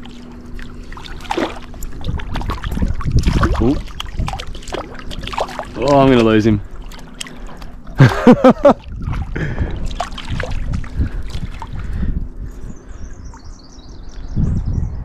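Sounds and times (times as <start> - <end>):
water splashing and sloshing: 0.0 - 13.8
bird twittering: 12.6 - 15.0.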